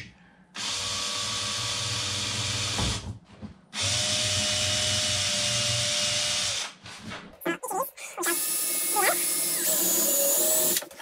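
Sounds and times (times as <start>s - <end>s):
cordless drill boring: 8.2s - 10.9s.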